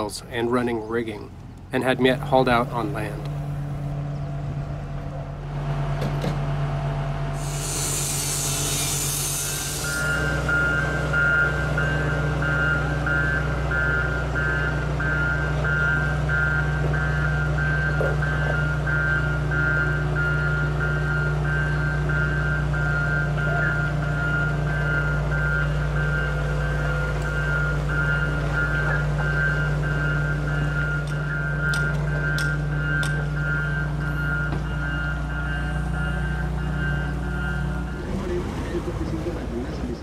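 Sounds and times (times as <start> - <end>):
heavy vehicle engine running: 0.0 - 40.0
air release hiss: 7.4 - 10.2
reversing alarm beeping: 7.4 - 39.9.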